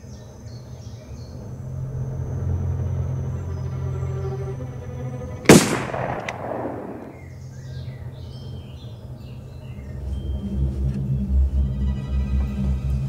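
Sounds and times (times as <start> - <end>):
low pulsing music: 0.0 - 13.0
low steady drone: 0.3 - 7.4
rifle shot: 5.5 - 7.4.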